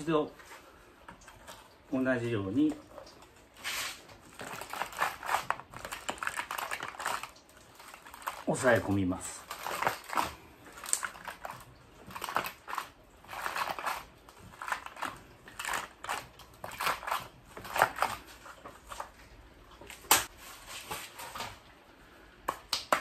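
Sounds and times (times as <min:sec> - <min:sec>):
plastic and soil crunches: 0:03.5 - 0:19.2.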